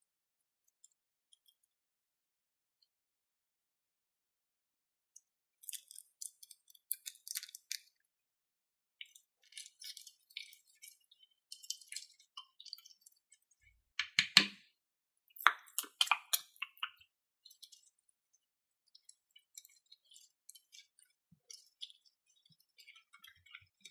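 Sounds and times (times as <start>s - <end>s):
plastic spoon stirring glue in bowl: 14.0s - 14.6s, 15.4s - 17.8s.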